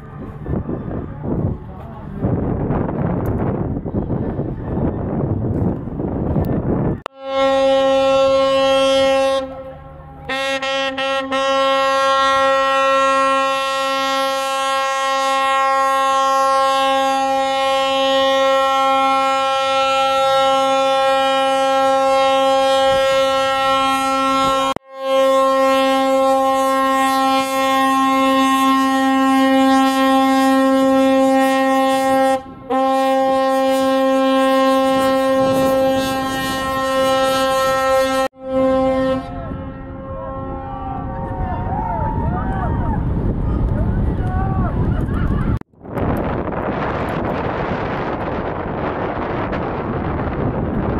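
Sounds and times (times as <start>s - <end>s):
ship's horn blast: 7.0s - 41.7s.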